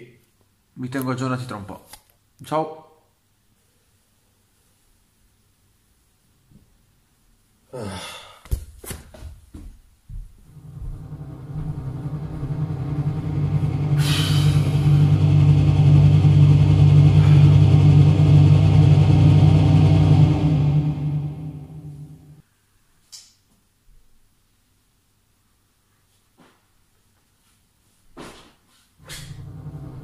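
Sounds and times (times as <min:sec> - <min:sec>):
falling whoosh: 0:10.5 - 0:22.4
low droning tone: 0:10.5 - 0:22.4, 0:29.0 - 0:30.0
sharp hits: 0:10.5 - 0:22.4
hiss: 0:14.0 - 0:14.9.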